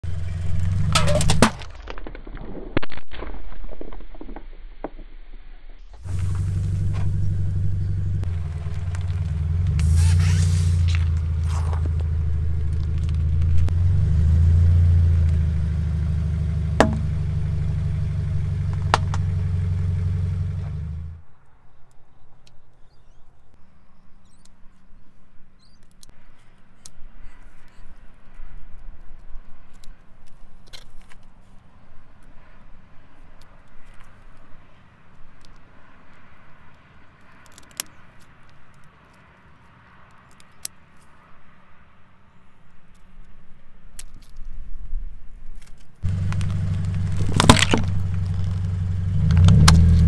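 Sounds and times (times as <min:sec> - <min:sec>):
car engine running: 0:00.0 - 0:01.5, 0:06.0 - 0:21.2, 0:46.0 - 0:50.0
objects crackling and popping under tyre: 0:00.0 - 0:23.6, 0:24.2 - 0:50.0.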